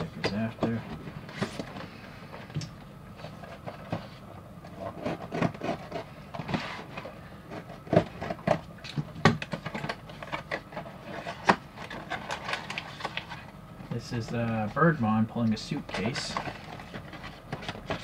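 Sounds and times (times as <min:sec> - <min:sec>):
scraping and rubbing of card: 0:03.2 - 0:08.6, 0:10.1 - 0:13.5.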